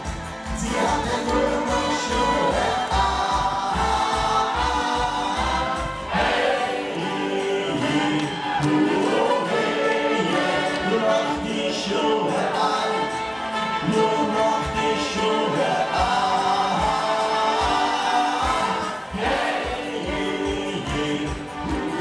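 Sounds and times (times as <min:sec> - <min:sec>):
acoustic guitar: 0:00.0 - 0:22.0
trumpet: 0:00.0 - 0:22.0
voices singing: 0:00.0 - 0:22.0.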